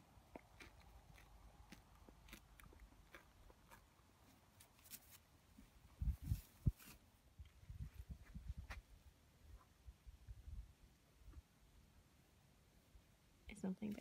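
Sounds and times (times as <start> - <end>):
horse chewing grass: 0.2 - 4.6.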